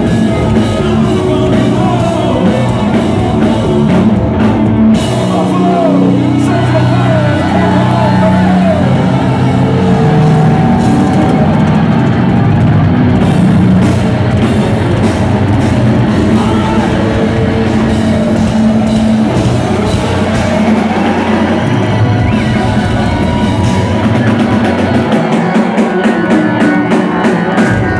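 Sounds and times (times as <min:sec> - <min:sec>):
heavy rock band playing loud: 0:00.0 - 0:27.9
rapid drum hits: 0:00.0 - 0:27.9.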